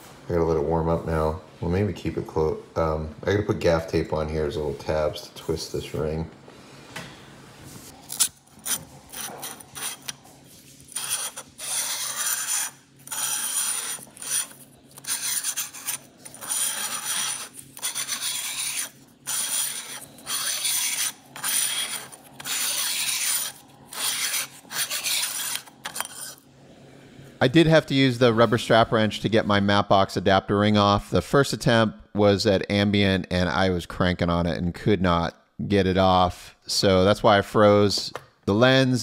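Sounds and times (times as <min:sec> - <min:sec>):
tape peeling and tearing: 0:08.0 - 0:26.4.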